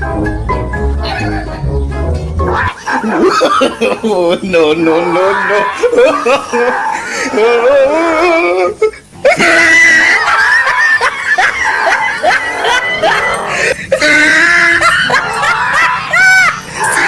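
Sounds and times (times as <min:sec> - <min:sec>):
background music: 0:00.0 - 0:06.1
people laughing and shrieking: 0:02.4 - 0:17.0.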